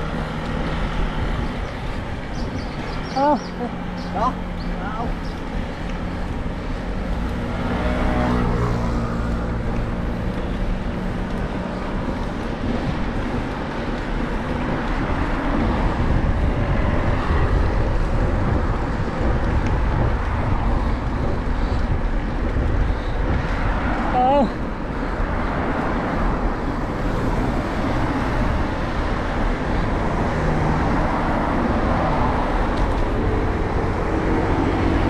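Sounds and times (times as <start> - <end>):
motor vehicle passing: 0.0 - 35.0
wind buffeting microphone: 0.0 - 35.0.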